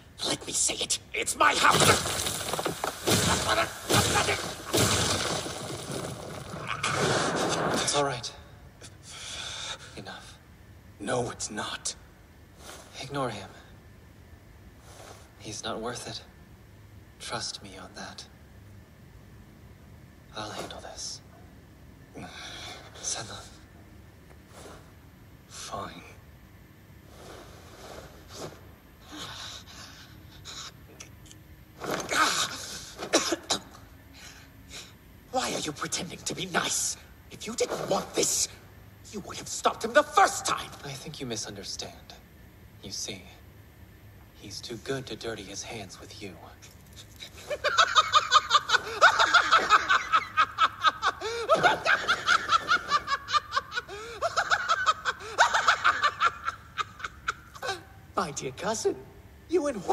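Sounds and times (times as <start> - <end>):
sharp thuds: 1.6 - 7.9
burst of noise: 1.6 - 8.2
man crying out in pain: 3.2 - 5.4
man laughing rapidly: 3.3 - 4.9, 47.5 - 57.8.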